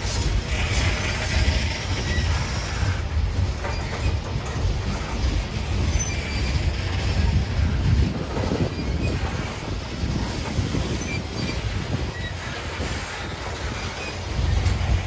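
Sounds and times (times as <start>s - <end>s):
train wheels rumbling on rails: 0.0s - 15.0s
high wheel squeals: 0.6s - 3.0s, 5.8s - 7.0s, 10.5s - 14.8s.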